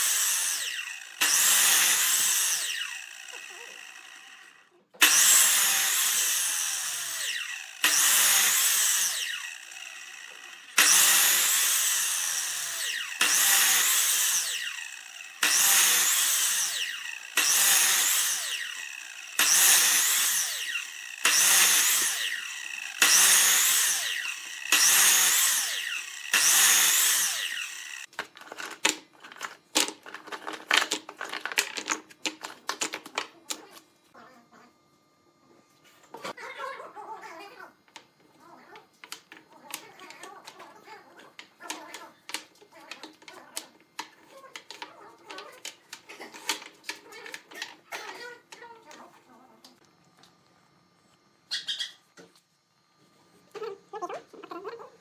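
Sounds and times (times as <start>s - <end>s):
miter saw cutting log: 0.0s - 28.1s.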